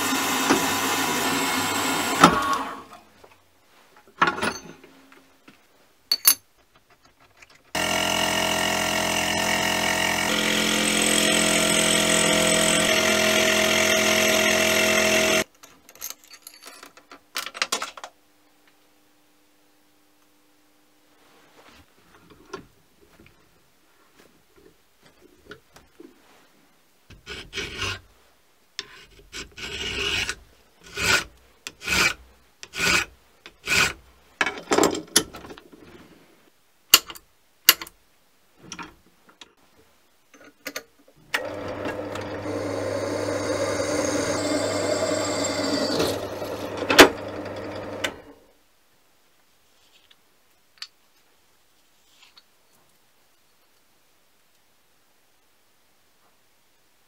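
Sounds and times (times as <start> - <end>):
drill running: 0.0 - 2.8, 7.8 - 15.5, 41.4 - 48.3.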